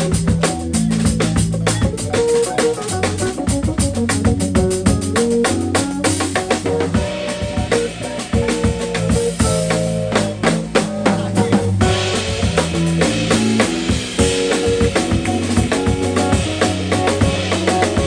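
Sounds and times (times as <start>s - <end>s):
live jazz band playing: 0.0s - 18.0s
cymbals: 6.2s - 18.0s.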